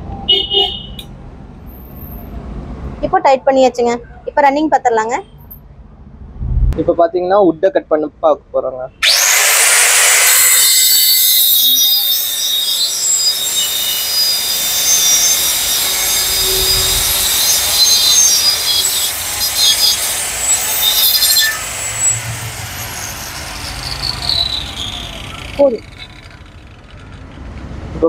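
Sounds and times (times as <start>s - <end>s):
electric cutter whining through wood: 9.0s - 27.8s.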